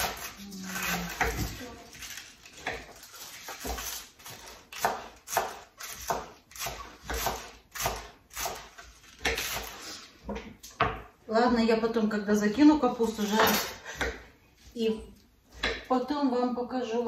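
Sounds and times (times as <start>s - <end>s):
knife slicing cabbage: 0.0s - 10.2s.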